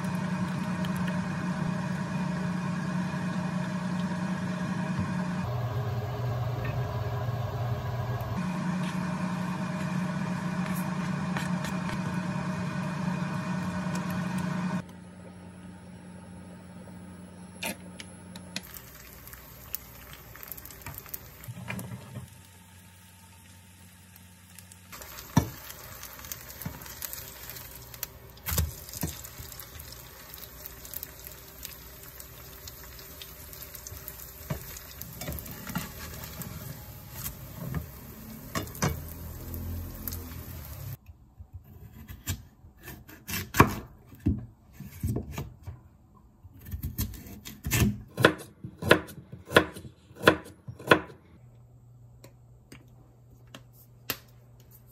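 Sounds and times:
steady hum: 0.0s - 19.8s
batter sizzling in oil: 18.6s - 41.0s.

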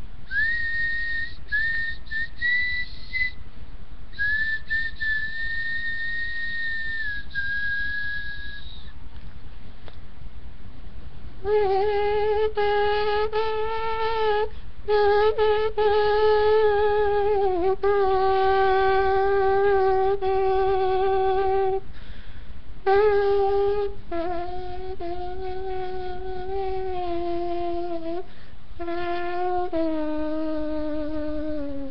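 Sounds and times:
trumpet playing long notes: 11.4s - 21.8s, 22.9s - 28.2s, 28.8s - 31.9s.

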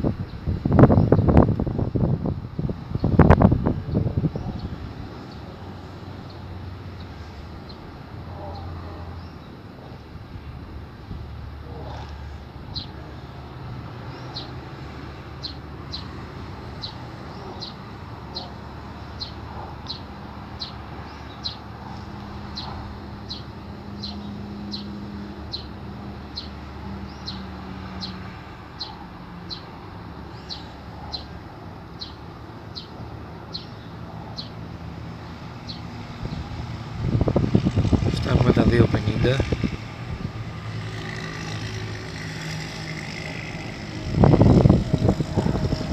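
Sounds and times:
low outdoor rumble: 33.2s - 45.9s.

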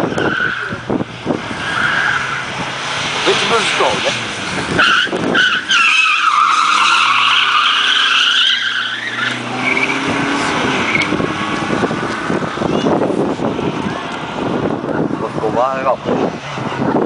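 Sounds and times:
tyres squealing: 0.0s - 0.9s, 1.5s - 13.0s
car engine accelerating: 0.0s - 17.0s.

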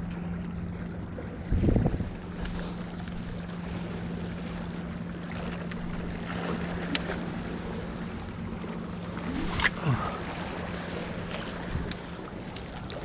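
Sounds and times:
sea noise: 0.0s - 13.0s
steady low hum: 0.0s - 13.0s
wind on microphone: 1.4s - 2.7s.

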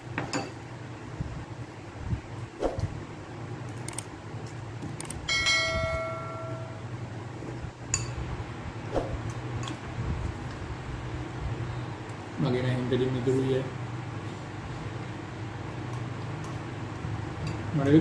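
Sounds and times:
chime ringing: 5.3s - 6.9s.

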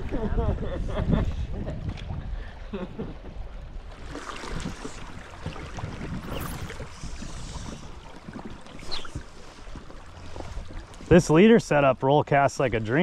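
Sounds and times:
wind rumble on microphone: 0.0s - 11.3s
running river water: 1.5s - 13.0s
small splashes and ticks: 3.9s - 13.0s.

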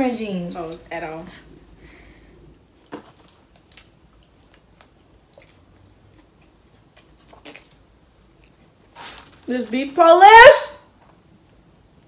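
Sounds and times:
person chewing a soft wrap: 2.8s - 9.4s.

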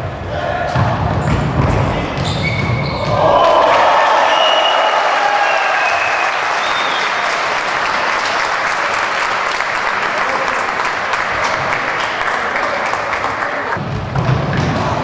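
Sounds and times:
crowd applause: 3.2s - 13.8s.

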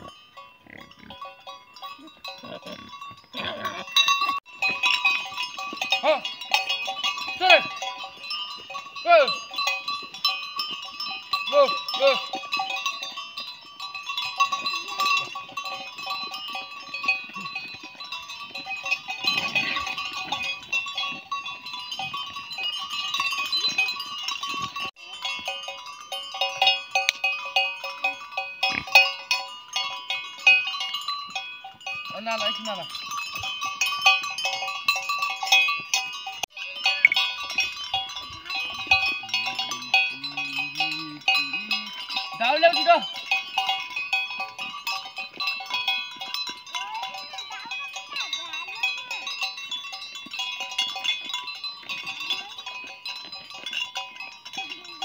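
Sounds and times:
sheep bells clinking: 0.0s - 55.0s
sheep bleating: 39.2s - 41.9s.

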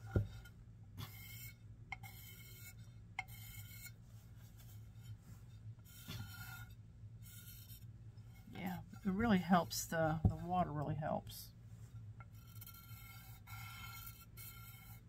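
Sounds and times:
pencil scratching on ceramic: 0.1s - 10.7s, 11.9s - 15.0s.

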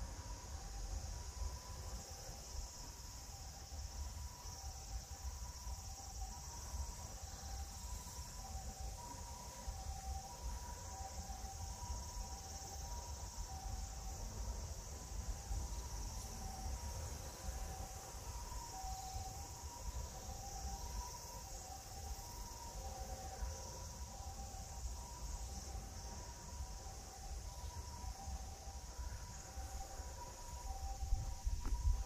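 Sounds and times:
insects buzzing: 0.0s - 32.0s
wind rumble on microphone: 29.4s - 32.0s.

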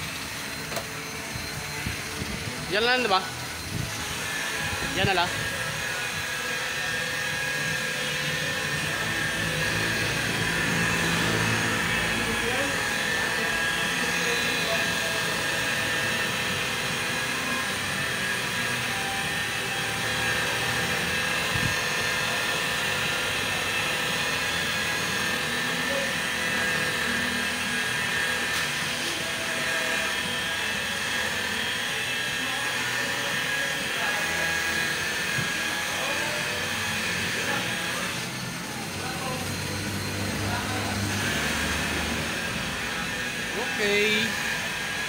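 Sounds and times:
electric polisher motor whine: 0.0s - 45.0s.

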